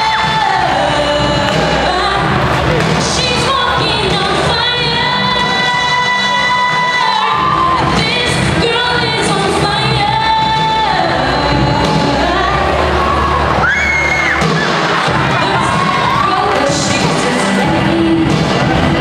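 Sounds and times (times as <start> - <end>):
girl singing into a microphone: 0.0 - 13.4
musical accompaniment: 0.0 - 19.0.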